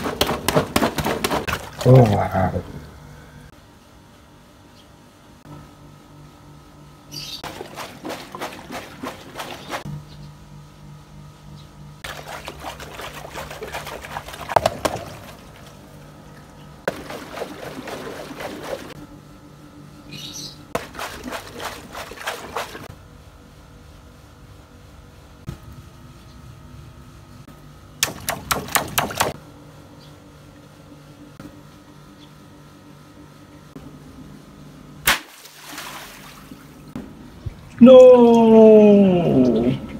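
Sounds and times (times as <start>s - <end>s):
faint low hum: 0.0s - 39.9s
hose water spraying and splashing: 7.4s - 9.9s, 12.0s - 15.7s, 16.9s - 19.0s, 20.8s - 22.9s.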